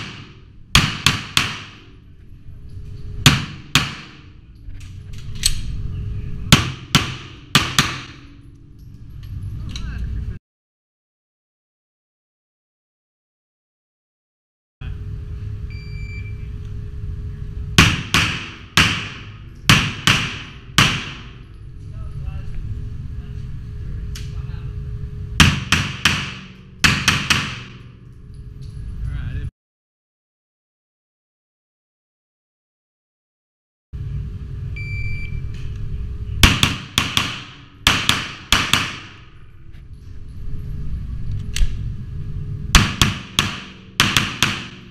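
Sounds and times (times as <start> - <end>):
pistol shots echoing indoors: 0.0 - 2.0, 3.2 - 4.4, 6.5 - 8.4, 17.8 - 21.5, 25.4 - 28.0, 36.4 - 39.4, 42.8 - 44.9
steady low hum: 0.0 - 10.4, 14.8 - 29.5, 34.0 - 44.9
shot timer beep: 34.8 - 35.4
low rumble: 39.3 - 42.8
pistol shots: 42.8 - 44.9.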